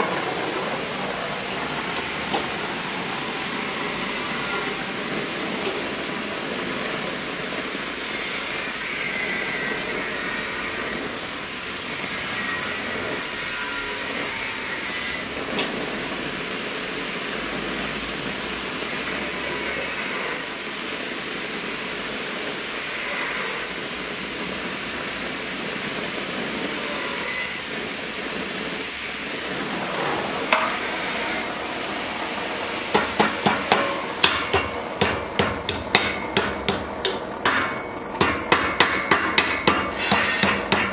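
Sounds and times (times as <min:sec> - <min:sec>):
hammer striking hot metal: 0:30.5 - 0:31.4, 0:32.9 - 0:40.9.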